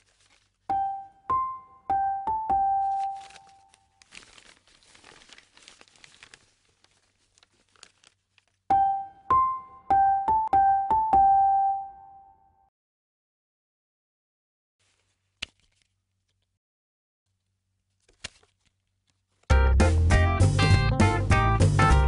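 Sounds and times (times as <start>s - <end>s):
paper rustling: 0.0s - 0.8s, 2.6s - 8.7s, 14.8s - 16.6s, 17.3s - 19.5s.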